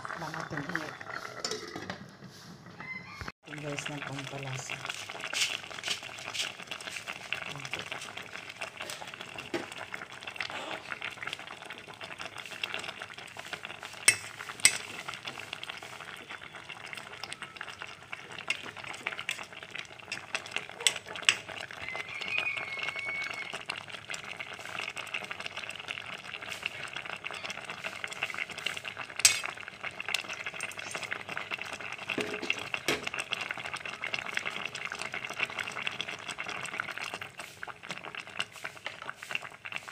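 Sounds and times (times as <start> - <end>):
pot simmering with bubbling hiss: 0.0 - 39.9
metal ladle clinking against pot: 14.1 - 14.9, 29.2 - 29.5.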